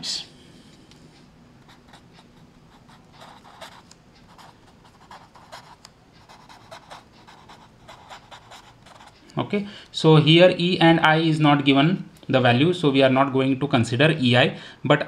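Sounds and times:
marker scratching on paper: 1.7 - 9.2.

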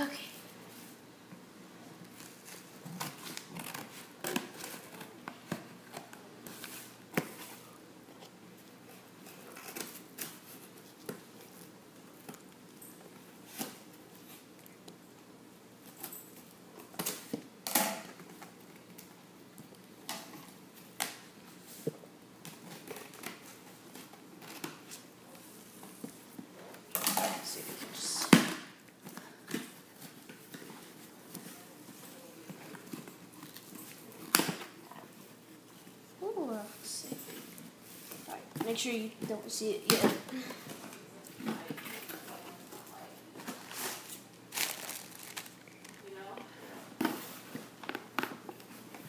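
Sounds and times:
cardboard rustling: 43.4 - 46.0.

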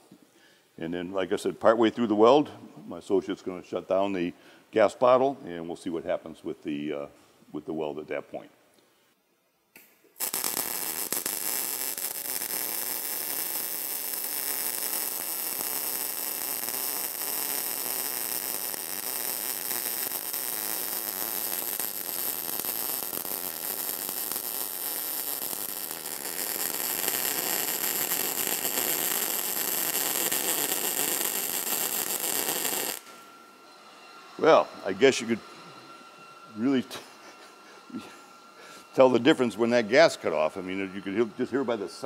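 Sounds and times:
welding arc sizzling: 9.8 - 33.4.

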